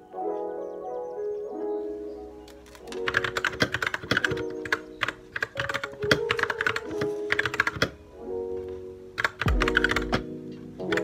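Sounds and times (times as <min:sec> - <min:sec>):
soft background music: 0:00.0 - 0:11.0
clicky keyboard key presses: 0:02.5 - 0:08.0, 0:09.2 - 0:10.3.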